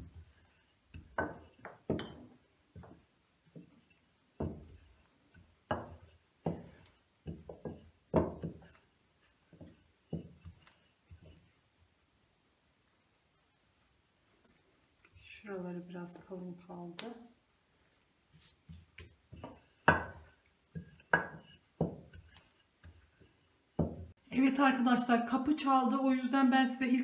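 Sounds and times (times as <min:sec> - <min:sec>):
rolling pin knocking on dough: 0:00.0 - 0:08.8, 0:19.0 - 0:24.1.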